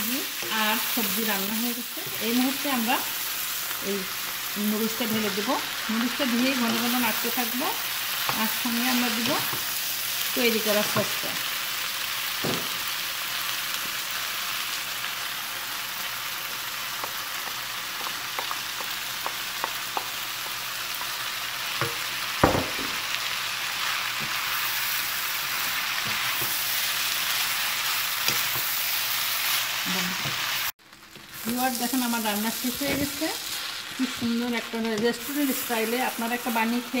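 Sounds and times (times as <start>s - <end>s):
food sizzling in a frying pan: 0.0s - 37.0s.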